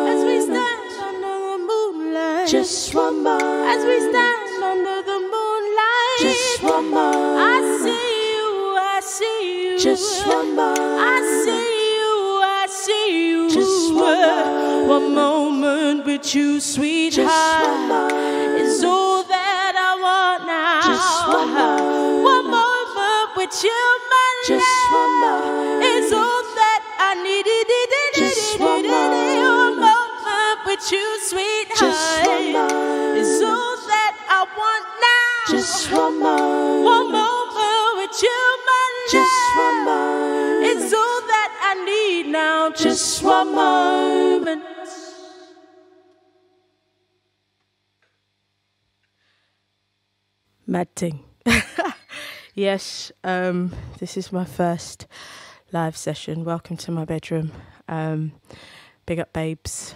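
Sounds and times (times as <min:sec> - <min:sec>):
woman singing a cappella harmony: 0:00.0 - 0:46.1.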